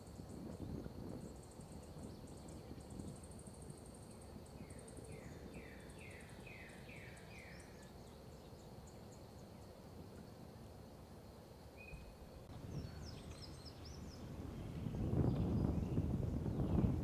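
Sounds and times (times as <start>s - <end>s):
birds chirping: 11.8s - 17.0s.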